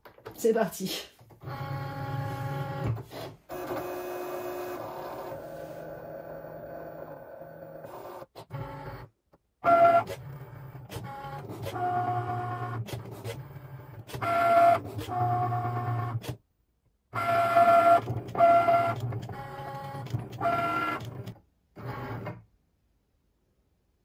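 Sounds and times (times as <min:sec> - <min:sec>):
cutting machine motors whining: 0:03.5 - 0:09.0.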